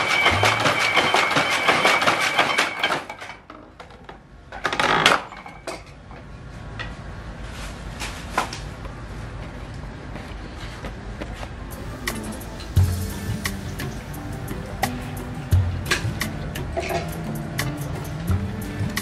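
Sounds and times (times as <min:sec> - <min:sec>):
wooden loom clattering: 0:00.0 - 0:06.1.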